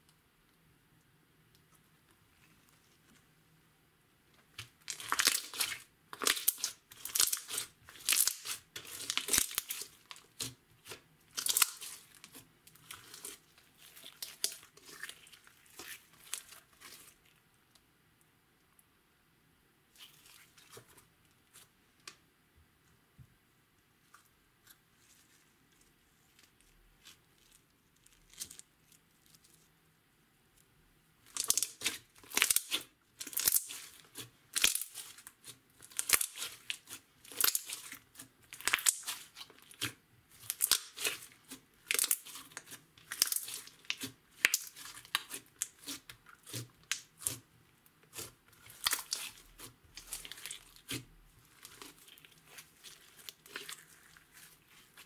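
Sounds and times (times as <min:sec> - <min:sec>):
slime squished by hand: 0:04.6 - 0:17.2, 0:31.2 - 0:55.0.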